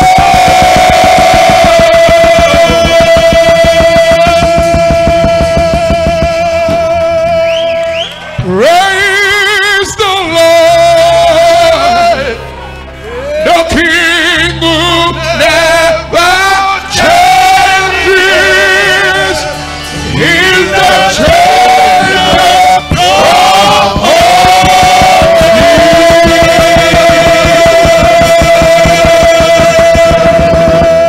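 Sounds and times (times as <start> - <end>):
steady drum beat: 0.0 - 7.5, 16.9 - 31.0
men's choir singing: 0.0 - 12.4, 13.5 - 31.0.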